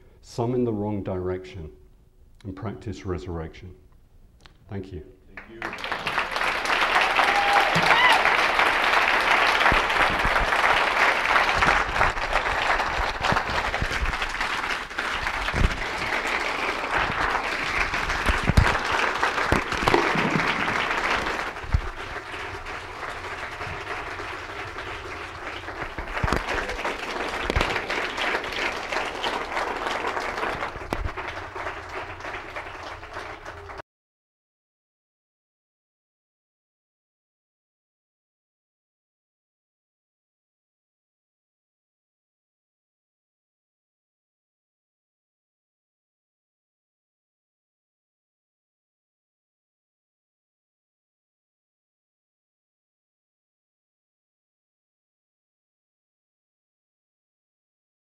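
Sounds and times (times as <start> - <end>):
audience applauding: 5.4 - 33.8.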